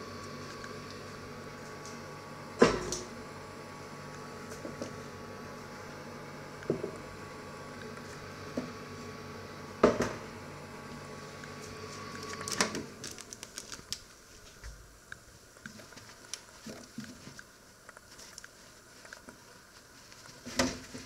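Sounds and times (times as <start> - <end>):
microwave oven humming: 0.0 - 21.0.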